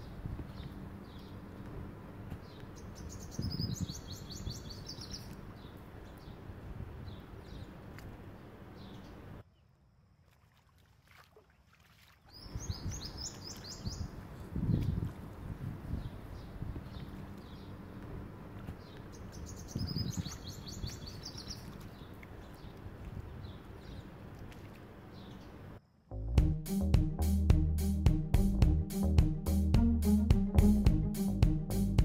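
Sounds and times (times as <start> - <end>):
steady low rumble: 0.0 - 4.0, 14.2 - 20.4, 26.1 - 32.0
songbird singing: 0.0 - 9.8, 12.2 - 25.9.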